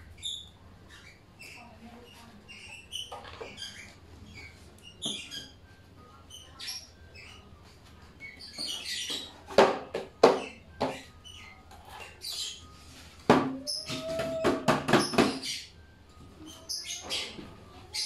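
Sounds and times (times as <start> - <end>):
high chirps and squeaks: 0.0 - 18.0
wood knocking on tile floor: 13.3 - 15.5.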